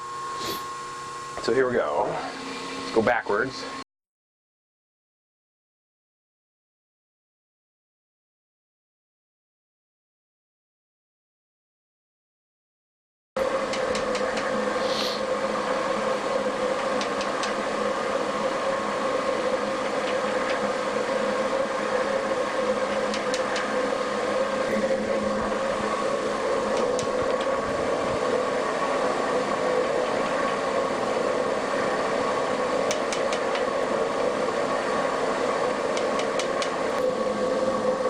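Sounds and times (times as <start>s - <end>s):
metal shaper mechanical hum: 13.4s - 38.0s
sharp clicks: 22.9s - 23.7s, 32.9s - 33.7s.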